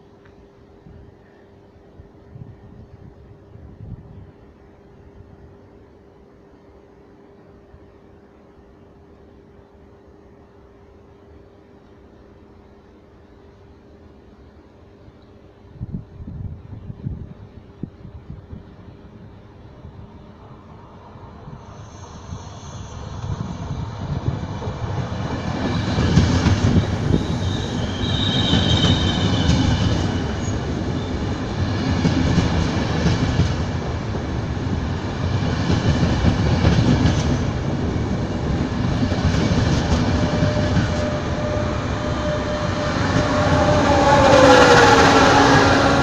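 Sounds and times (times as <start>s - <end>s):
electric locomotive whine: 0.0s - 46.0s
train wheels running noise: 19.9s - 46.0s
high squeal: 21.6s - 24.0s, 26.8s - 31.4s, 40.1s - 46.0s.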